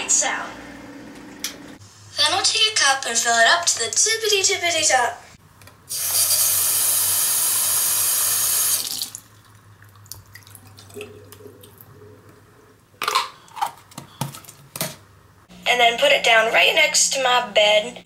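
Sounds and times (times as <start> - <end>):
faucet running water into cup: 5.9 - 9.2.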